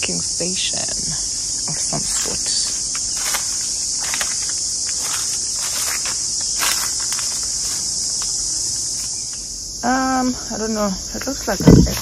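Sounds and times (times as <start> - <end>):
insects shrilling: 0.0 - 12.0
soft footsteps: 1.2 - 9.5.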